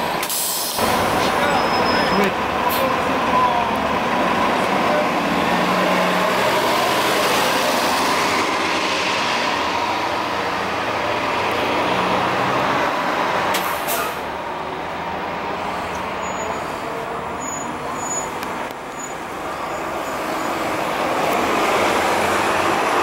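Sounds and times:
bus engine running loud: 0.0 - 23.0
bus rolling in: 0.0 - 23.0
air hiss: 0.2 - 0.8.

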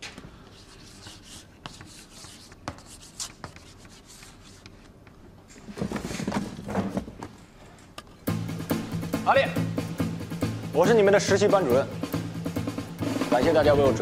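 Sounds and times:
chalk scratching on blackboard: 0.4 - 4.9.

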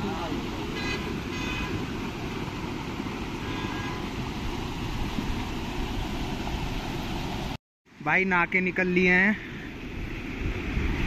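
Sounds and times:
river water rushing: 0.0 - 7.6.

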